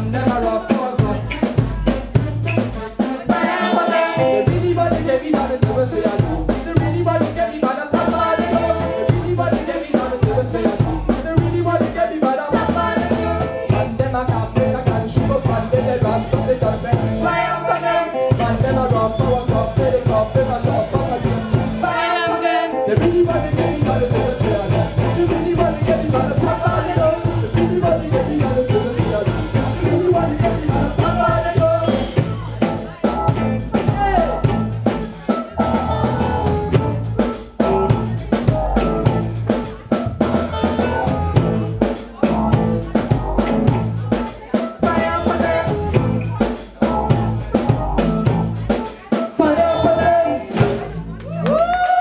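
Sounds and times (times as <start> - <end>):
live reggae band playing: 0.0 - 52.0
drum strokes: 23.0 - 51.0.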